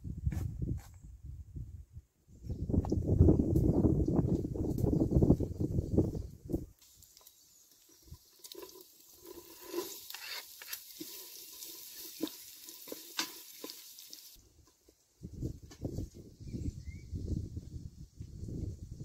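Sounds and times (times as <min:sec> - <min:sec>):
carrot sizzling in fat: 0:06.8 - 0:14.4
wooden spoon scraping and knocking: 0:08.4 - 0:13.8.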